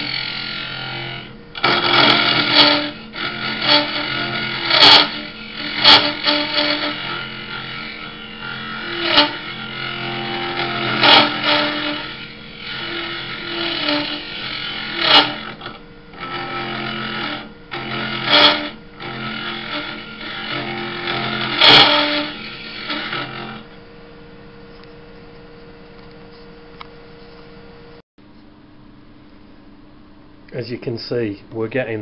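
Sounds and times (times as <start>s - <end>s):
tool scraping wood: 0.0s - 23.7s
turning tool cutting wood: 0.0s - 23.8s
wood lathe humming: 0.0s - 23.9s.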